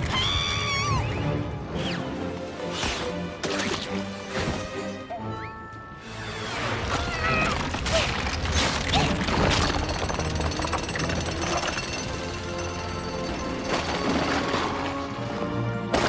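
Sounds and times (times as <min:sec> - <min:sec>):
background music: 0:00.0 - 0:16.0
rocks crashing and rumbling: 0:07.2 - 0:12.0.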